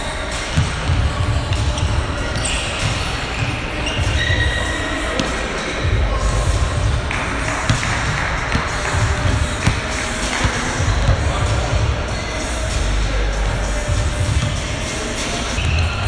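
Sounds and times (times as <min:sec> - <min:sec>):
basketball bouncing on hardwood: 0:07.7 - 0:11.3.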